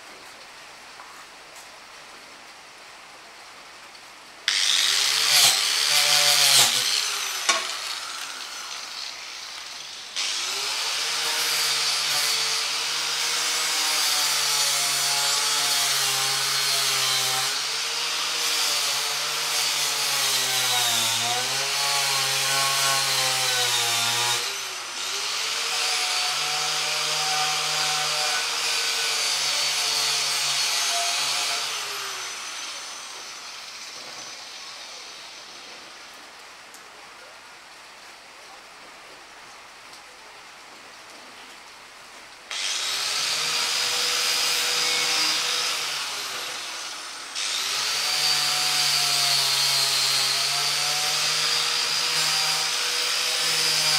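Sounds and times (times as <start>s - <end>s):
rain hiss: 0.0s - 5.2s, 7.0s - 13.0s, 32.6s - 42.5s
power tool grinding metal: 4.5s - 35.8s, 42.5s - 53.9s.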